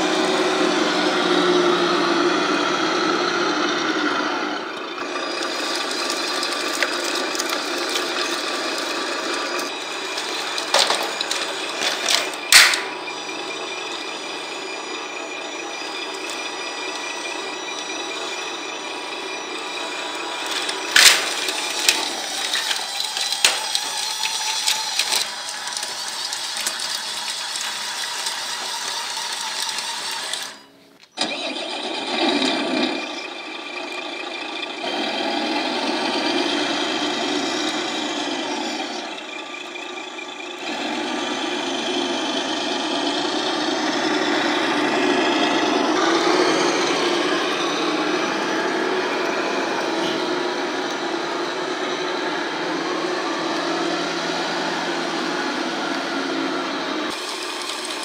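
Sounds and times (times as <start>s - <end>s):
mechanical whir: 0.0s - 58.0s
model truck engine drone: 0.0s - 58.0s
sharp clicks and knocks: 5.4s - 13.0s.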